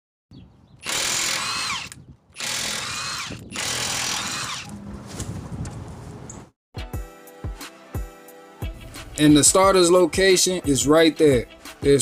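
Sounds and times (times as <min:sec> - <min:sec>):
impact wrench whining: 0:00.8 - 0:04.8.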